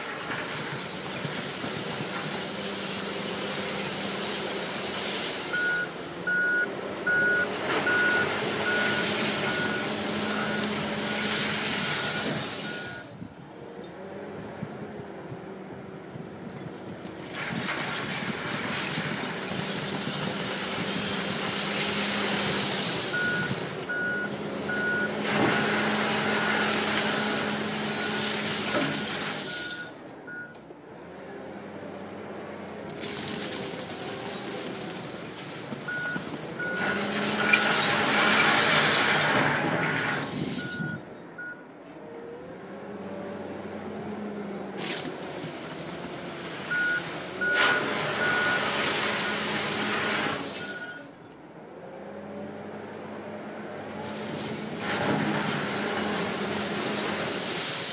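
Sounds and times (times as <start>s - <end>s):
glass bottles rushing in bucket: 0.0s - 5.6s, 16.1s - 23.9s, 25.3s - 30.1s, 32.9s - 41.1s, 44.8s - 51.4s, 54.0s - 57.9s
wheel loader diesel engine: 0.0s - 57.9s
reversing alarm beeps: 5.5s - 13.2s, 23.1s - 25.6s, 29.4s - 30.6s, 35.9s - 37.8s, 40.5s - 41.6s, 46.7s - 49.6s, 50.6s - 51.0s.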